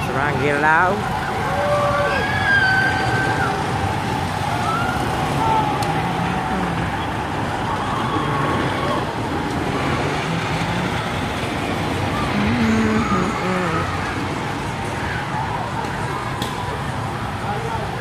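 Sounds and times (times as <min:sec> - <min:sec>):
faint voices: 0:00.0 - 0:18.0
steady dense noise: 0:00.0 - 0:18.0.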